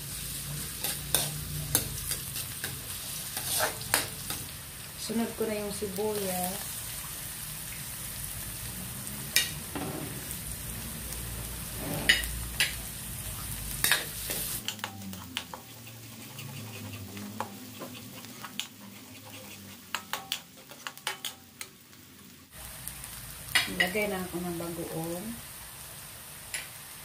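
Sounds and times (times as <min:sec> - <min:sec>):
onion sizzling in hot oil: 0:00.0 - 0:27.0
clicks and taps on metal wok: 0:13.8 - 0:15.6, 0:19.9 - 0:21.4, 0:26.5 - 0:26.7.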